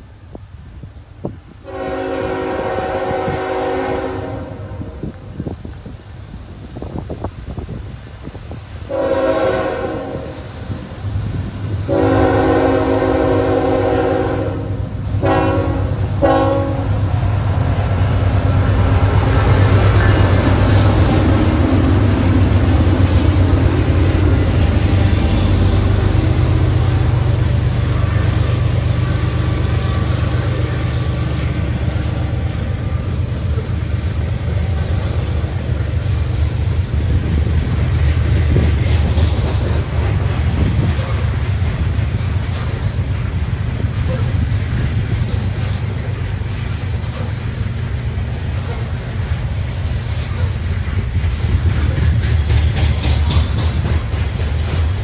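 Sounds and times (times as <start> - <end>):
locomotive horn blasts: 1.6 - 5.1, 8.9 - 10.6, 11.9 - 17.5
train cars rolling over rails: 5.0 - 55.0
locomotive engine drone: 8.2 - 55.0.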